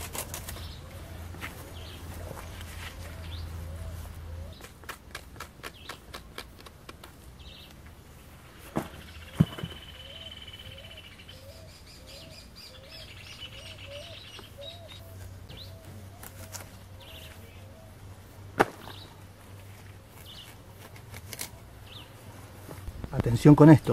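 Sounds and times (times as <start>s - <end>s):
higher bird chirps: 8.4s - 17.9s.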